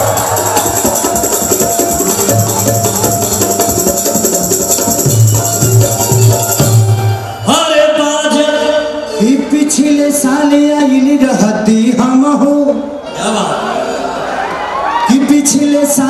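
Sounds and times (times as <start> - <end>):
deep drum beats: 0.0 - 7.2
jingling percussion rhythm: 0.0 - 7.6
held melodic line: 0.0 - 10.1.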